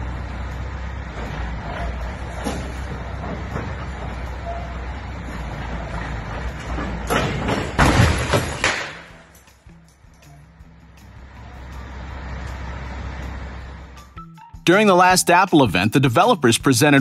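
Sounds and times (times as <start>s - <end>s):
low engine sound: 0.0s - 7.9s, 9.1s - 14.3s
concrete barrier crashing onto car: 6.7s - 9.3s.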